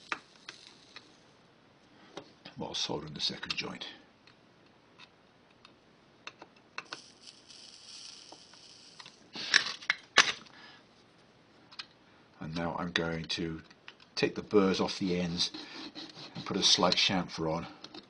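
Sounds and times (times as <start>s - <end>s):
flux sizzling under soldering iron: 0.0s - 1.4s, 6.8s - 10.0s, 14.6s - 16.8s.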